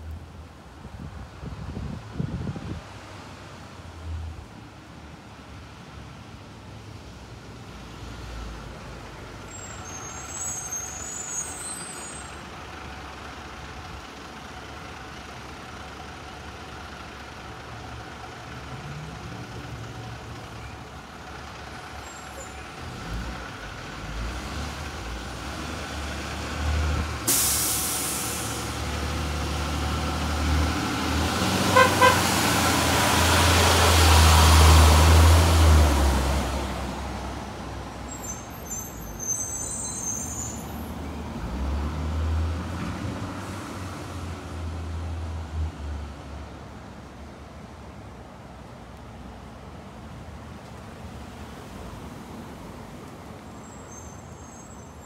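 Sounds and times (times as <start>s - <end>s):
bus diesel engine: 0.0s - 55.0s
air brakes hissing: 27.2s - 28.7s, 38.1s - 40.9s
bus horn toots: 31.7s - 32.4s.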